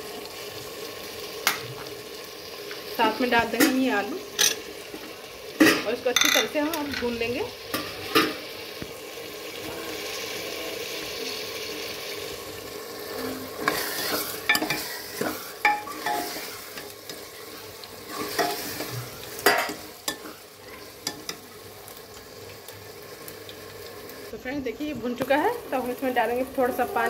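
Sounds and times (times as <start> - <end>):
food frying and sizzling: 0.0 - 27.0
metal ladle scraping pot: 13.0 - 17.2.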